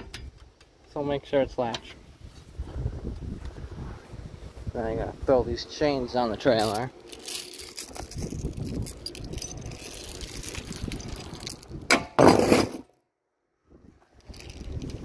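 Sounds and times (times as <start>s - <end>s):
steel chain clinking on wood: 6.5s - 11.8s, 14.2s - 15.0s.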